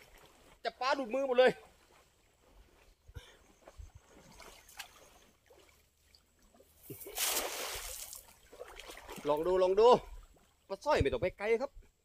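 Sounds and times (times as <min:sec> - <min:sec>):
water splashing: 0:00.0 - 0:02.8, 0:03.6 - 0:10.8
faint ticks and rustles: 0:01.6 - 0:07.1.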